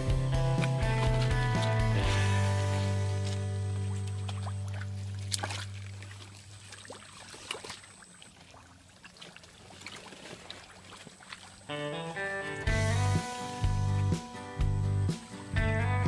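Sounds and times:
background music: 0.0s - 4.5s, 11.7s - 16.0s
splashing in muddy water: 0.0s - 16.0s.

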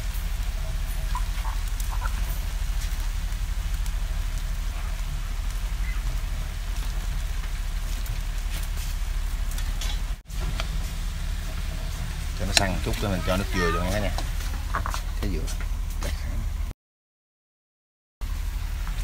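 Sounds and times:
steady low rumble: 0.0s - 16.7s, 18.2s - 19.0s.

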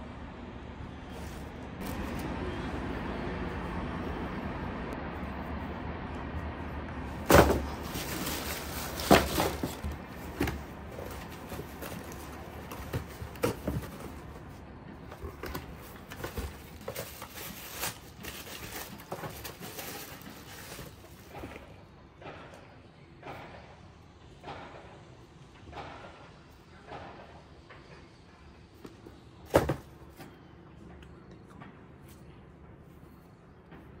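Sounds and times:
shoeboxes knocking: 7.1s - 21.7s, 29.4s - 30.3s
paper wrapping rustling: 7.2s - 14.4s, 15.1s - 21.3s.

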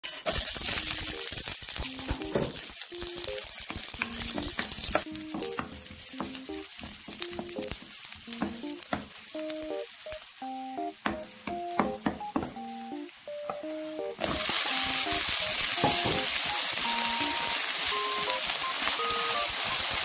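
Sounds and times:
garlic sizzling in oil: 0.0s - 20.0s
spatula clicking on pan: 0.3s - 10.2s.

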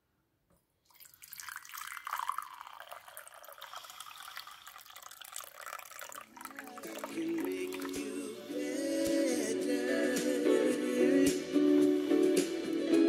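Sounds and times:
tea pouring into glass mug: 0.9s - 8.4s.

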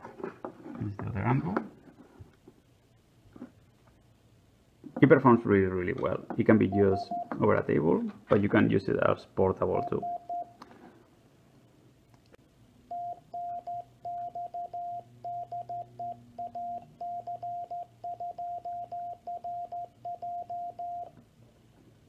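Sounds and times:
morse code beeps: 6.7s - 7.4s, 9.8s - 10.5s, 12.9s - 21.1s.

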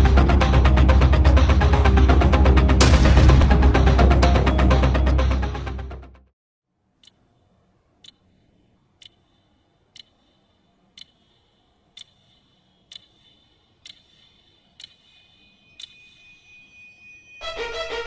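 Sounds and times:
alarm clock ticking: 7.0s - 8.3s, 9.0s - 18.0s.

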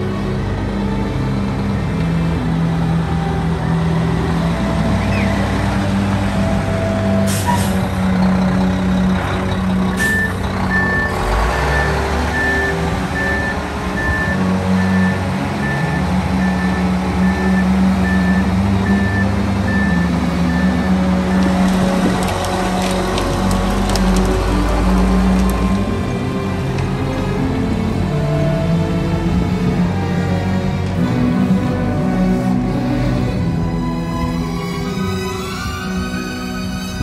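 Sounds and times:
truck diesel engine running: 0.0s - 36.5s
reversing alarm beeping: 10.0s - 21.6s.

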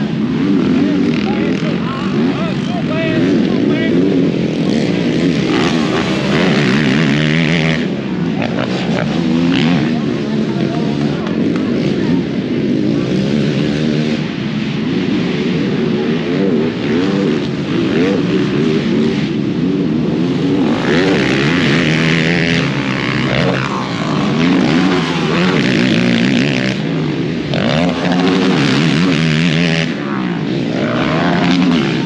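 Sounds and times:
atv engines revving: 0.0s - 32.0s.

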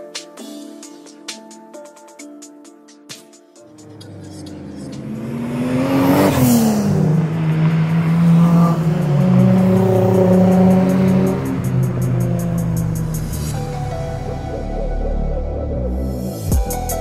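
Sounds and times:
car sweeping past: 3.8s - 14.2s
sports car engines revving: 3.8s - 14.8s.

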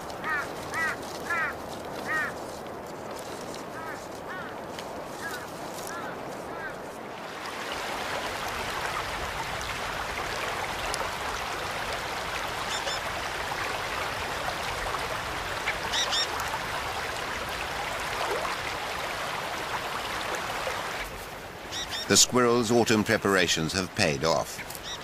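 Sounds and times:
rushing outdoor background noise: 0.0s - 25.0s
high-pitched animal calls: 0.2s - 2.4s.

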